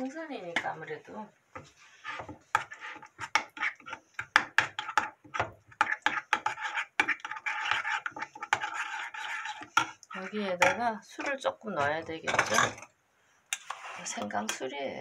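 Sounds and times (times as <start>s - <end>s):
metal spoon scraping ceramic bowl: 4.6s - 12.9s, 13.5s - 14.7s.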